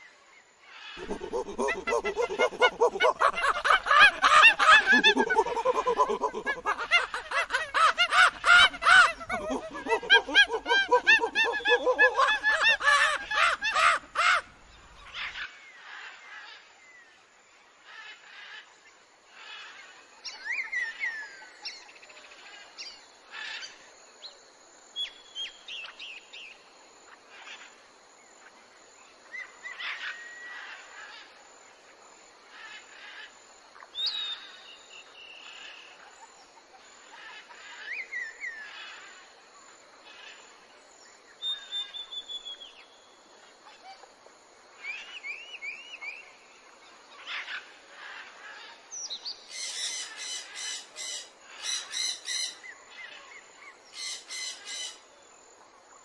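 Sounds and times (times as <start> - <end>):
birds chirping: 1.0 - 14.4
laughter-like sound effect: 1.0 - 14.4.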